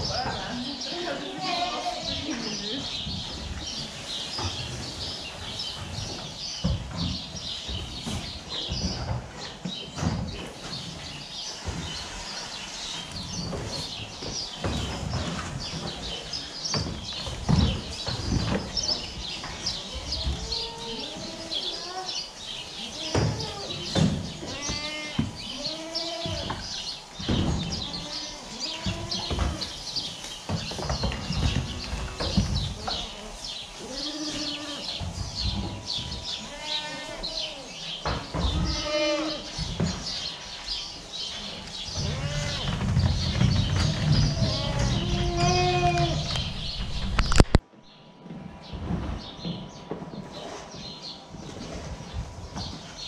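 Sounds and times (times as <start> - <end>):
goats bleating: 0.5 - 2.4, 24.5 - 26.5, 36.4 - 37.8, 38.5 - 39.5, 42.0 - 42.7, 44.3 - 46.3.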